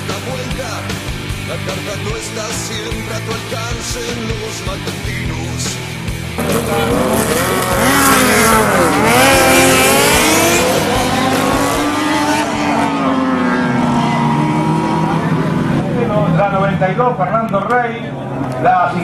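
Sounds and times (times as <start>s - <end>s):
racing motorcycles revving past: 6.4s - 16.0s.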